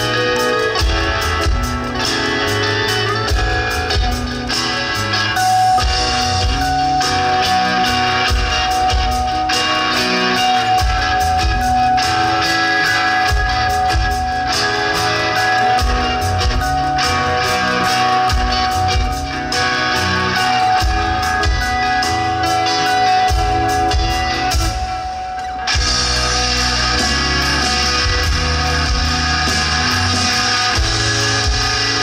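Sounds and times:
electric guitar: 0:00.0 - 0:32.0
live rock band playing: 0:00.0 - 0:32.0.

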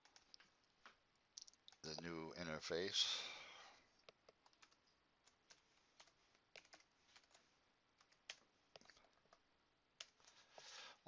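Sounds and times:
faint keyboard keystrokes: 0:04.0 - 0:07.4.

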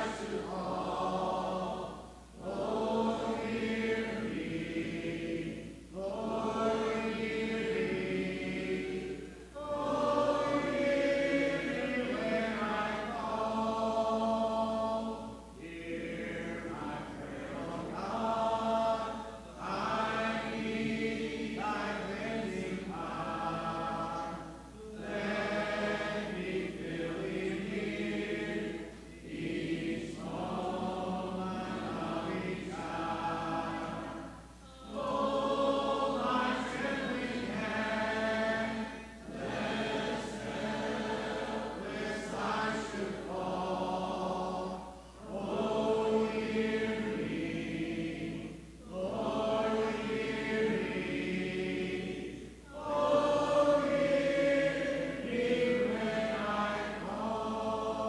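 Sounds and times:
congregation singing a hymn: 0:00.0 - 0:58.0.

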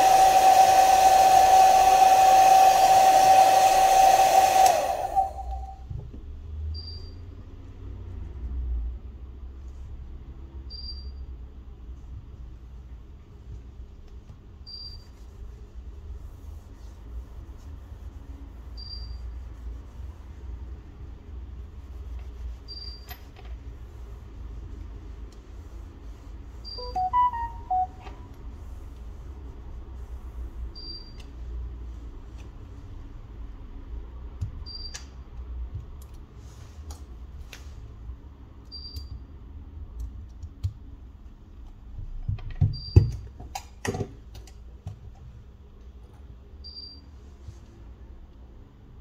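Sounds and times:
faint high beep: 0:26.7 - 0:28.1
electronic chime: 0:26.8 - 0:28.0.

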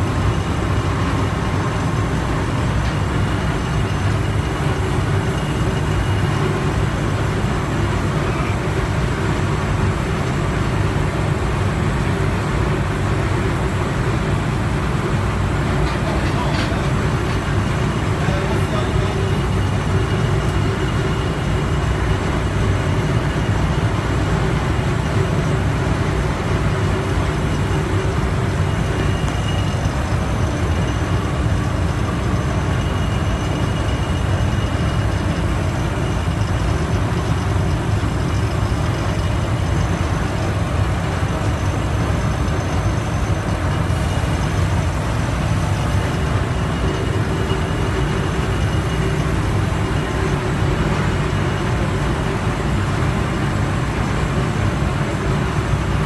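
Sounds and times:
refrigeration machinery drone: 0:00.0 - 0:56.0
faint steady whine: 0:12.1 - 0:56.0.

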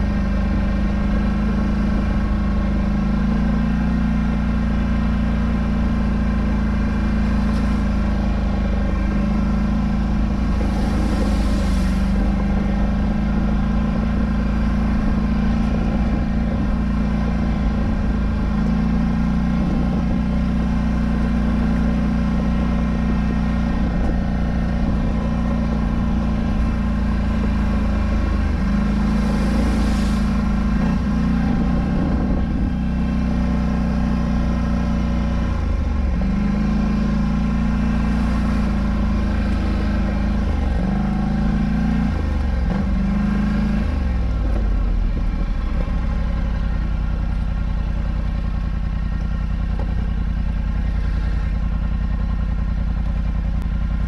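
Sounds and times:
atv engine revving: 0:00.0 - 0:54.0
brief hisses: 0:10.7 - 0:12.2.

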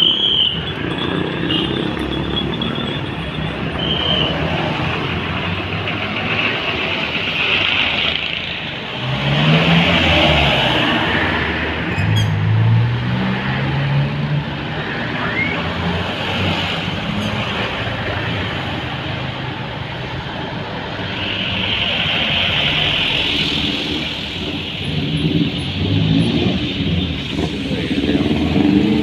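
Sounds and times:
trucks driving by: 0:00.0 - 0:29.0.

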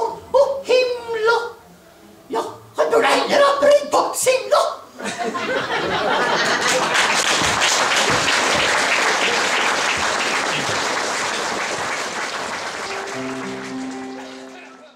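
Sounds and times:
audience applauding: 0:06.1 - 0:14.9.

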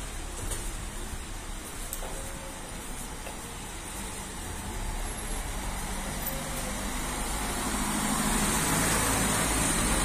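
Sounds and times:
tyres hissing on wet road: 0:03.1 - 0:10.0.

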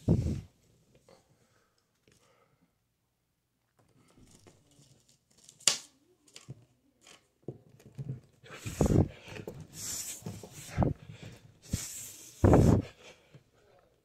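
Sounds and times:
person breathing forcefully: 0:08.4 - 0:13.4.

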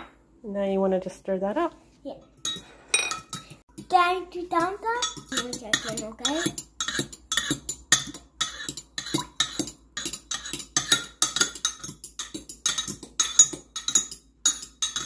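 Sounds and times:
metal spoon clinking against glass: 0:02.4 - 0:03.5, 0:05.0 - 0:15.0.

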